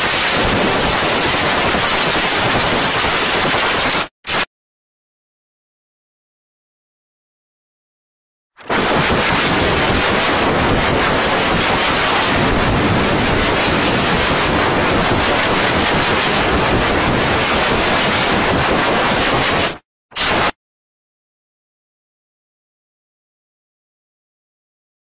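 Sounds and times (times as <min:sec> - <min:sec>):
loud harsh static noise: 0:00.0 - 0:04.5, 0:08.6 - 0:20.6.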